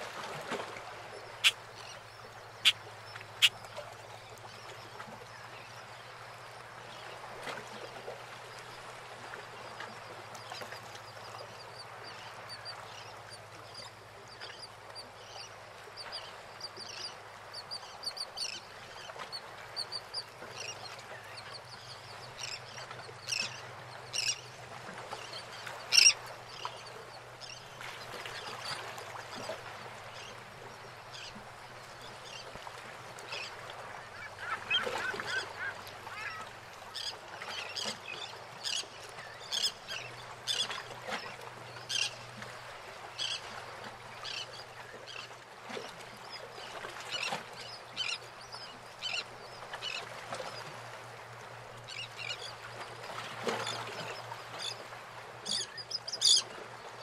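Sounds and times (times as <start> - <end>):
water lapping around boats: 0.0 - 57.0
birds crying: 34.1 - 36.5.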